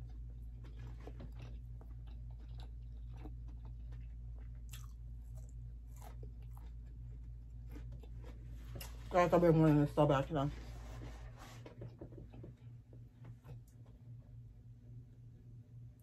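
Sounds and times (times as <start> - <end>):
chewing crunchy fried food: 0.0 - 9.1
low hum: 0.0 - 16.0.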